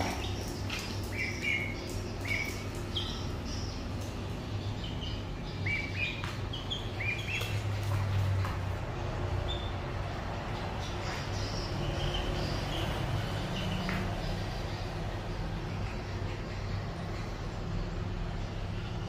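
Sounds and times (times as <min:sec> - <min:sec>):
ducklings and chicks peeping: 0:00.0 - 0:18.8.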